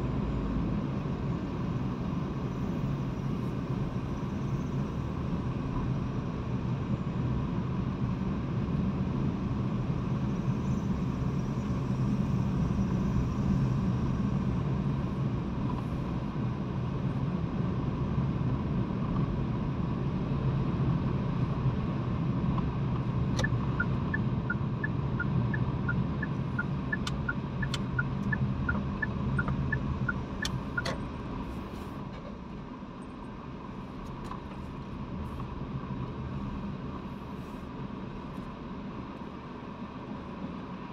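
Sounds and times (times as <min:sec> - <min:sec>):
engine and road hum in car: 0:00.0 - 0:40.9
turn signal ticking: 0:22.5 - 0:31.2.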